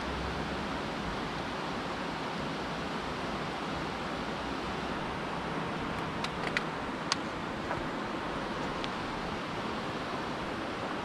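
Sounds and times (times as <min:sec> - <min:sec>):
water rushing over a weir: 0:00.0 - 0:11.0.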